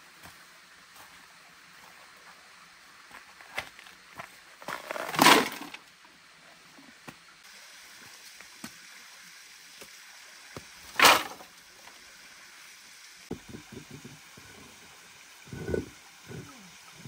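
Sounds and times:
stream running: 0:00.0 - 0:17.0
sticks clattering onto rocks: 0:04.7 - 0:05.8, 0:11.0 - 0:11.4.

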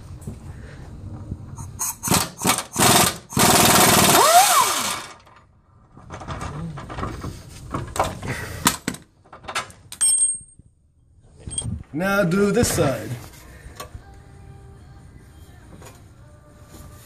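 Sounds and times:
power ratchet spinning bolt: 0:01.8 - 0:05.2.

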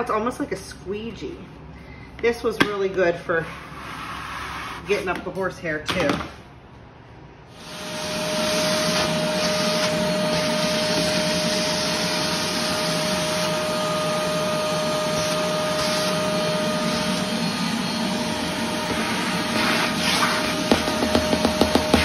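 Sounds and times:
shop vacuum whining: 0:07.5 - 0:22.0.

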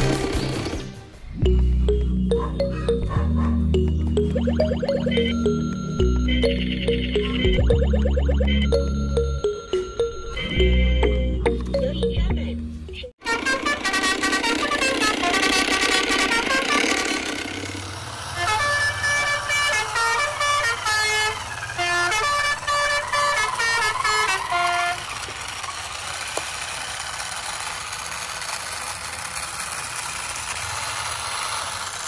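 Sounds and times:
electronic toy beeping tune: 0:03.8 - 0:13.1.

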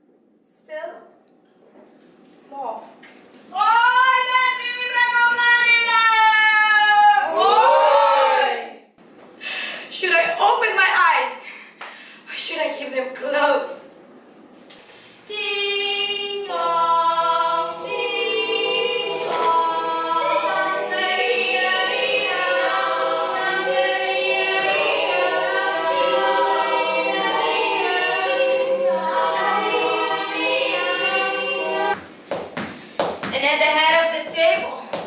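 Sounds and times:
voices singing a cappella: 0:03.6 - 0:08.8, 0:15.3 - 0:32.0.

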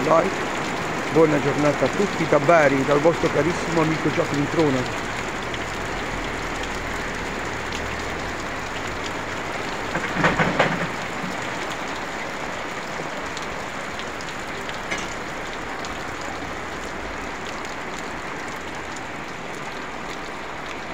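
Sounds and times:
heavy rain on street: 0:00.0 - 0:20.9
loud knocks: 0:09.9 - 0:11.4.

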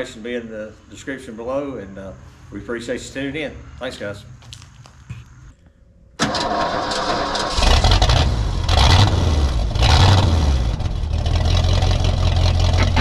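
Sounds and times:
truck engine cranking and running: 0:06.2 - 0:13.0.

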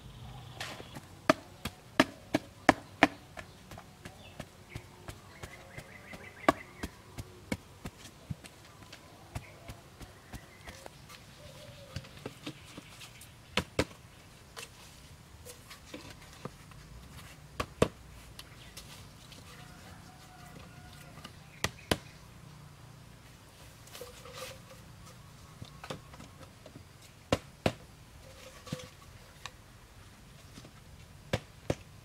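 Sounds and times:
wooden stakes knocking: 0:00.6 - 0:11.2
wooden pole tamping earth: 0:00.6 - 0:22.1, 0:23.5 - 0:29.6.

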